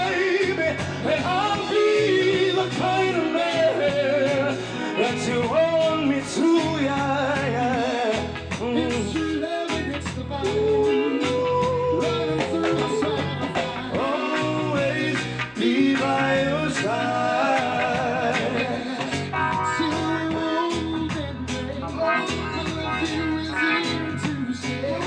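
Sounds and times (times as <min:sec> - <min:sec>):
bass line: 0:00.0 - 0:25.0
drums: 0:00.0 - 0:25.0
electric guitar: 0:00.0 - 0:25.0
men singing: 0:00.0 - 0:25.0.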